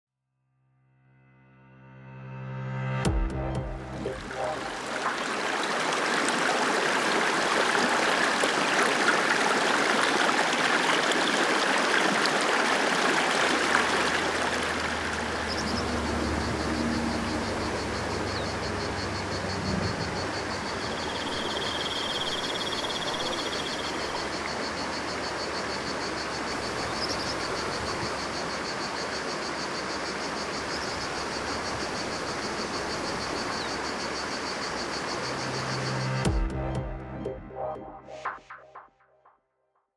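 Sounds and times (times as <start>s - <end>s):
stream running over stones: 4.1s - 36.0s
high insect trill: 13.7s - 36.2s.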